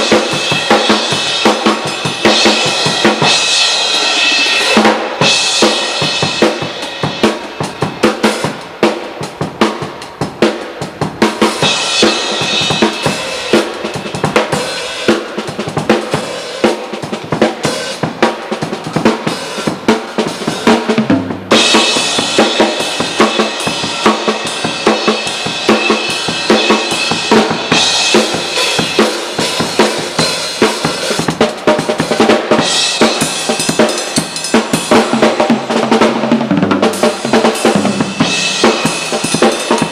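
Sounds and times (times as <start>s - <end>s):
cymbals ringing: 0.0s - 8.5s, 21.5s - 31.2s, 37.0s - 39.9s.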